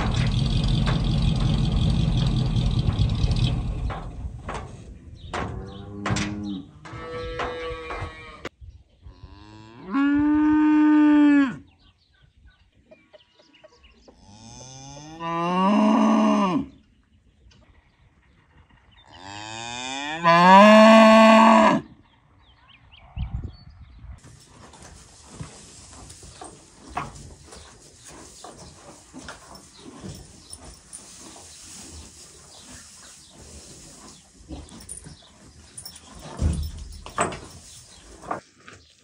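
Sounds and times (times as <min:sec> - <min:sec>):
cow mooing: 0:14.3 - 0:16.8, 0:19.2 - 0:21.9.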